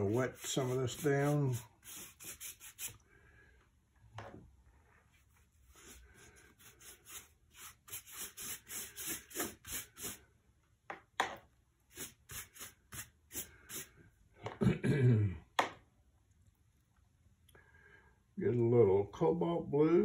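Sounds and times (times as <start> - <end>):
brush scratching on paper: 0.0 - 3.0, 5.1 - 10.2, 11.9 - 13.9.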